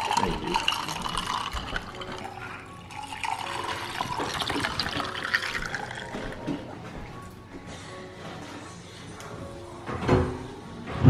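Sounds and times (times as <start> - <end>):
liquid pouring into a glass of ice: 0.0 - 6.6.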